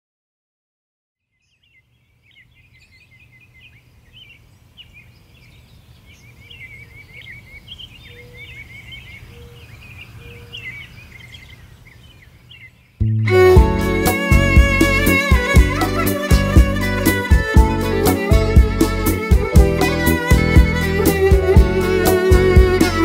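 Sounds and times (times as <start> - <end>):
birds chirping and trilling: 1.2 - 19.4
low-pitched bird calls: 1.5 - 13.2.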